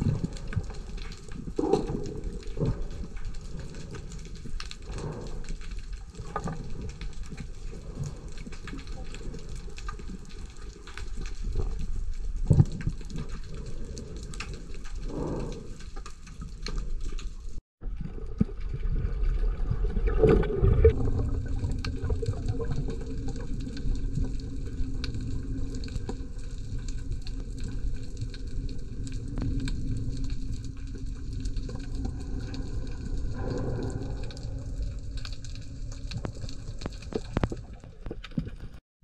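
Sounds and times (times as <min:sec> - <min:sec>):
muffled underwater rush: 0:00.0 - 0:15.8, 0:16.9 - 0:38.8
sharp underwater clicks: 0:00.0 - 0:17.4, 0:21.6 - 0:38.8
water gushing: 0:18.2 - 0:38.8.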